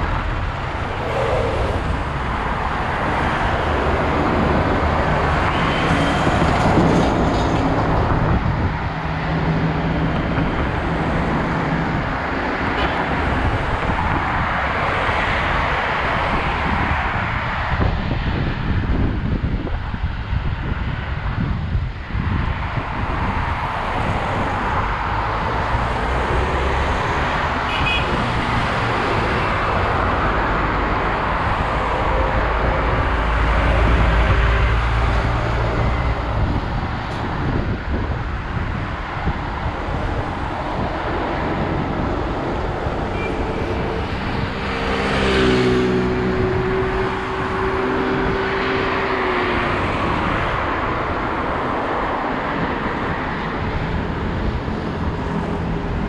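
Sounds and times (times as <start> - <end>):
cars passing: 0.0 - 56.0
low rumble: 0.6 - 3.2.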